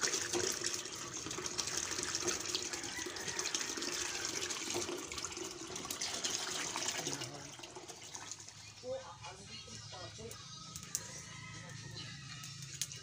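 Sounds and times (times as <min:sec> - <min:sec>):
water pouring into metal basin: 0:00.0 - 0:08.9.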